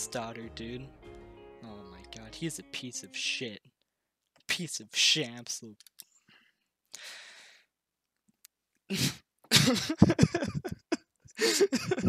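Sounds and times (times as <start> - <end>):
man breathing: 6.2 - 7.7
man coughing: 9.0 - 12.0.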